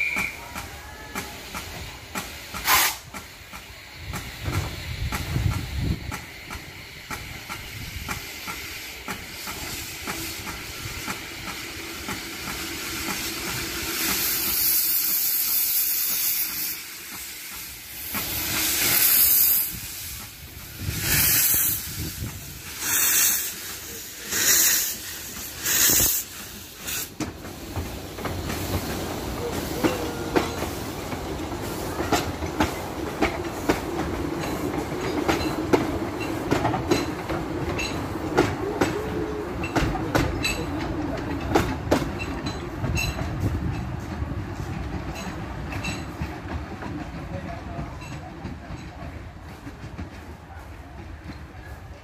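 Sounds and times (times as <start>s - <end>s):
loud blasts of steam: 0.0s - 33.7s
steam locomotive hissing steam: 0.0s - 52.0s.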